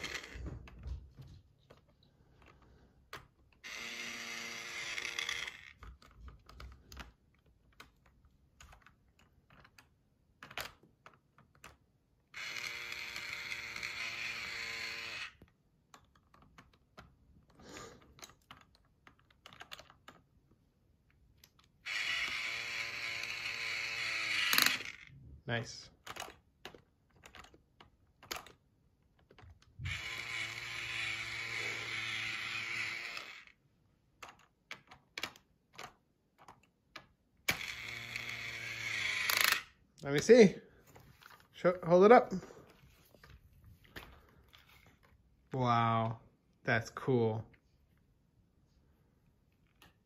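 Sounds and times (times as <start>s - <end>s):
toy electric drill whirring: 0.0s - 0.8s, 3.1s - 7.1s, 12.3s - 15.5s, 21.7s - 25.2s, 29.2s - 33.6s, 37.4s - 39.8s
plastic pieces clicking: 1.6s - 4.0s, 4.8s - 14.5s, 15.3s - 22.5s, 23.2s - 25.2s, 25.9s - 31.7s, 32.8s - 40.3s.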